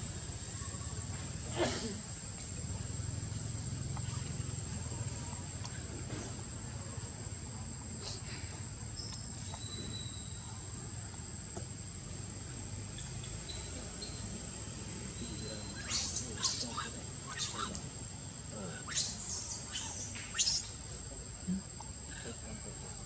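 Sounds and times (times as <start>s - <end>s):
high-pitched insect drone: 12.7s - 22.9s.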